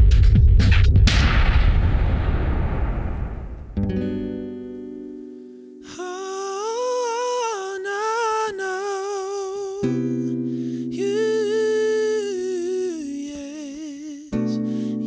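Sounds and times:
strummed acoustic guitar: 3.8 - 15.0
man singing held notes: 5.8 - 9.9, 11.0 - 15.0.

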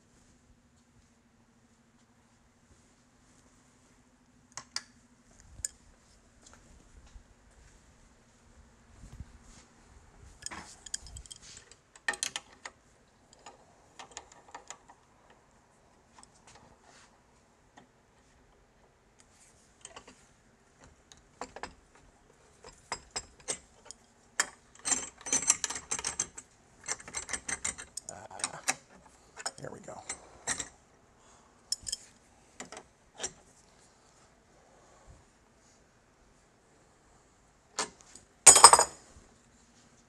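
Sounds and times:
clicks and metallic rattles of clamp: 10.4 - 15.1, 20.8 - 30.7, 31.7 - 33.4.

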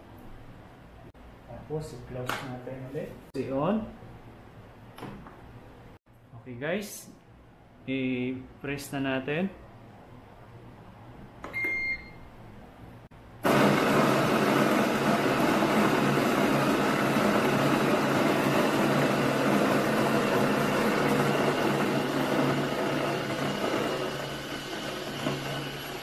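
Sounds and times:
short electronic beep: 11.5 - 12.2
coffee grinder motor whirring: 13.5 - 26.0.

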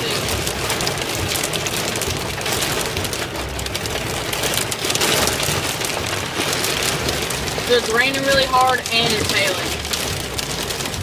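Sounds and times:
hail and rain on a car: 0.0 - 11.0.

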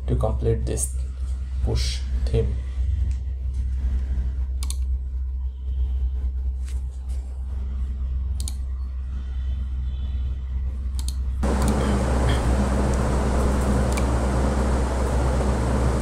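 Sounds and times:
steady low hum: 0.0 - 16.0
sharp clicks: 13.6 - 14.2.

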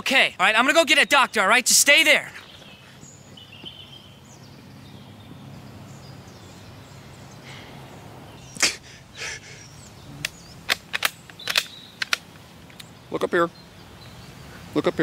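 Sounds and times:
man's pained breaths: 7.4 - 7.9, 8.6 - 9.8
sharp clicks: 10.2 - 13.0.

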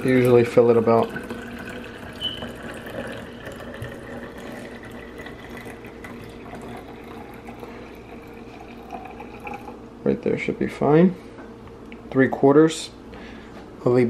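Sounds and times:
tea pouring into bottle: 0.0 - 9.8.

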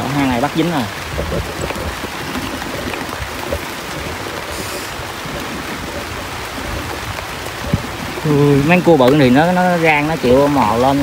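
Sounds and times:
heavy rain on leaves: 0.0 - 11.0.

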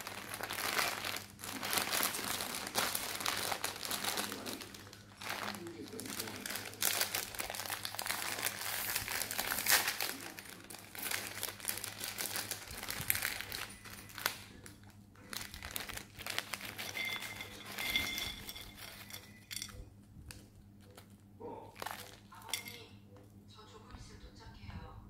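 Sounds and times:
plastic bag crinkling: 0.0 - 22.8
crackers clattering into ceramic bowl: 15.3 - 19.8, 21.7 - 22.9.

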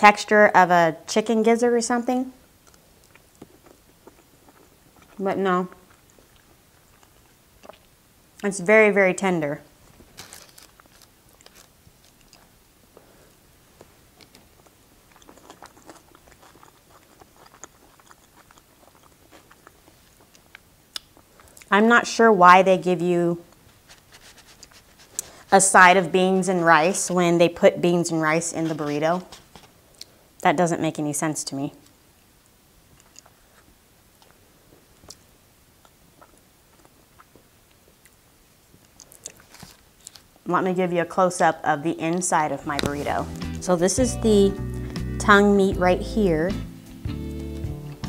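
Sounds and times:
close chewing with wet mouth clicks: 2.6 - 8.0, 14.2 - 21.7, 35.0 - 38.2
knife and fork scraping: 28.5 - 29.7.

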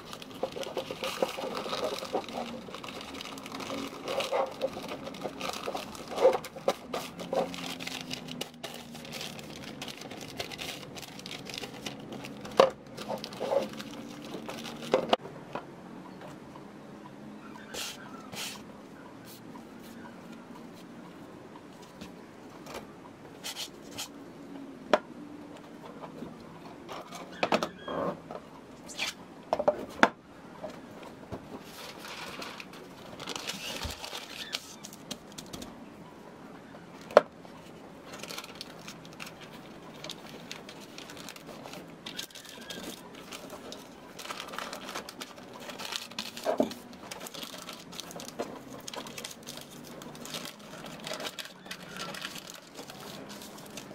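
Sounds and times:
paper rustling and crinkling: 0.0 - 15.2, 31.5 - 35.7, 37.0 - 53.9.

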